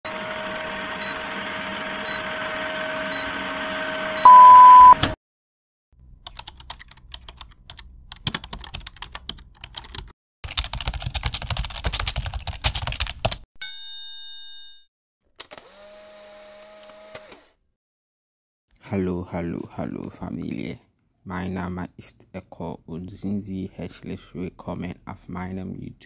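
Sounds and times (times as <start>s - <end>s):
loud steady beep: 4.2s - 5.0s.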